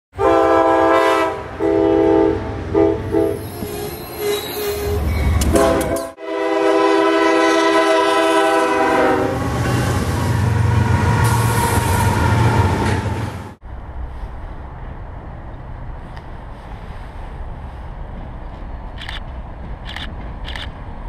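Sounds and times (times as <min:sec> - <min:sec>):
locomotive horn blasts: 0:00.2 - 0:03.5, 0:04.9 - 0:12.8
locomotive passing rumble: 0:00.2 - 0:21.0.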